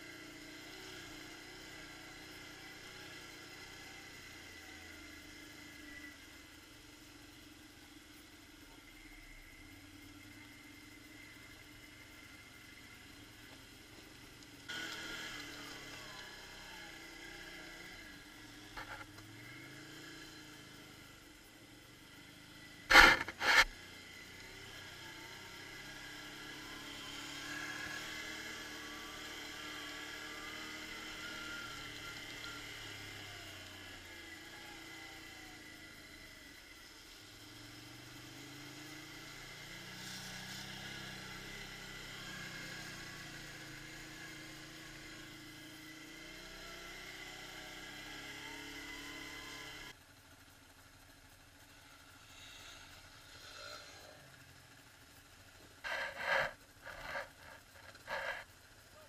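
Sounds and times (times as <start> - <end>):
quad bike engine revving: 0.0 - 5.7, 14.7 - 21.2, 22.2 - 50.0, 51.4 - 59.0.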